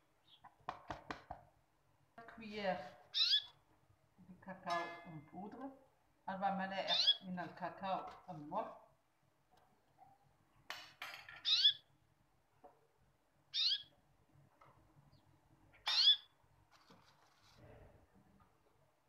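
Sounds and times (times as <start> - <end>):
high-pitched animal calls: 11.5 - 11.8, 13.5 - 13.9, 15.9 - 16.3.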